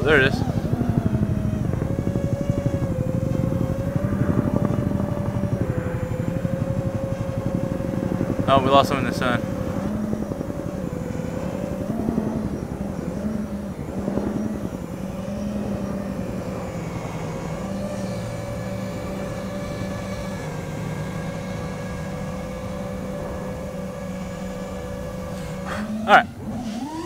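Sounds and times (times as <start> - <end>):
helicopter droning: 0.0 - 27.0.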